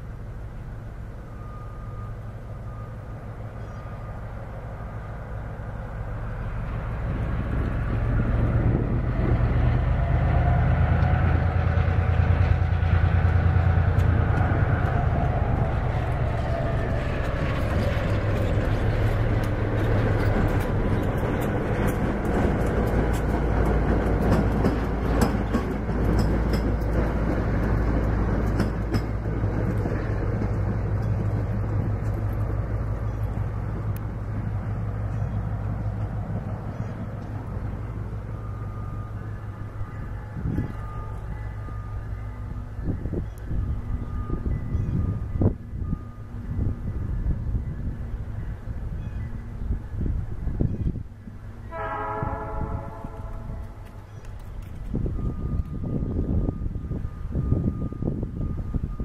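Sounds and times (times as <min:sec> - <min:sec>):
diesel locomotive rumble: 0:00.0 - 0:59.0
train wheels clicking: 0:06.6 - 0:44.5, 0:53.0 - 0:56.1.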